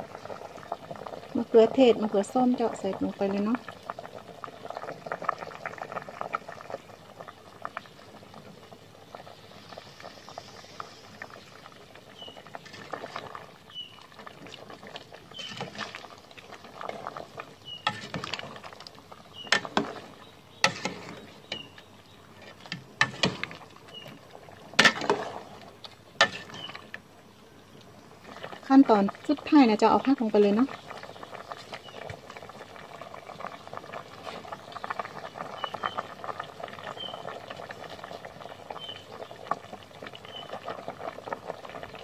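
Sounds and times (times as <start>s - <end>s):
curry bubbling in a pot: 0.0s - 42.0s
metal ladle scraping a pot: 15.3s - 16.0s, 17.7s - 18.7s, 19.3s - 24.0s, 24.8s - 25.5s, 26.2s - 27.0s.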